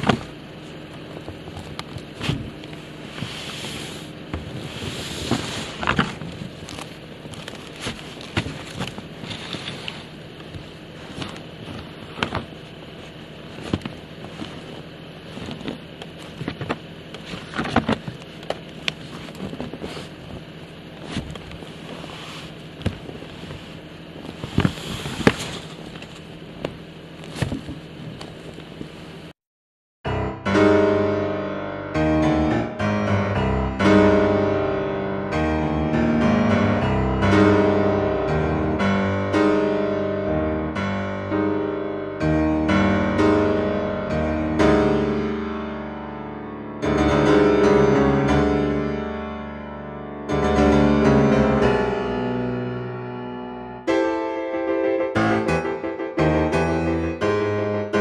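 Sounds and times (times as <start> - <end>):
background hum: 0.0 - 29.3
shovel scraping metal roof: 1.4 - 10.2, 19.0 - 26.3
piano music: 30.1 - 58.0.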